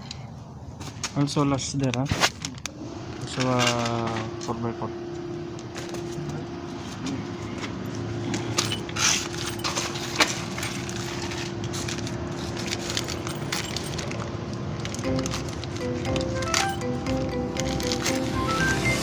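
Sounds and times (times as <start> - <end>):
steady hum: 2.7 - 19.0
metallic clicks and jingles: 8.3 - 18.2.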